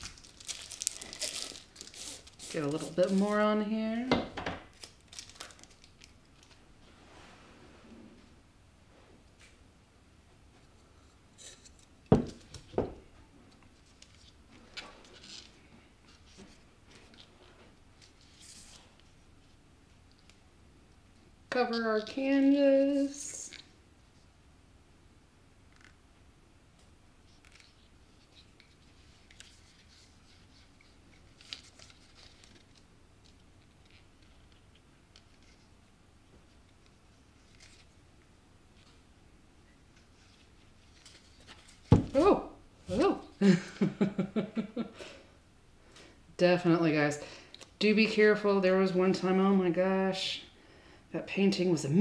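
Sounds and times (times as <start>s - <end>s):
paper crinkling: 0.0s - 3.6s, 4.7s - 6.6s, 27.3s - 35.7s, 36.5s - 38.0s, 40.0s - 42.2s.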